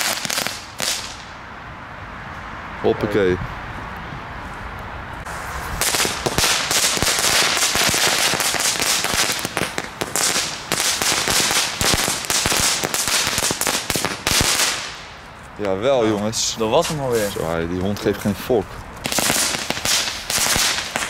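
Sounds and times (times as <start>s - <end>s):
firecracker hiss: 0.0s - 1.3s, 5.2s - 15.2s, 19.0s - 21.0s
firecrackers crackling pops: 0.0s - 1.3s, 5.2s - 15.8s, 19.0s - 21.0s.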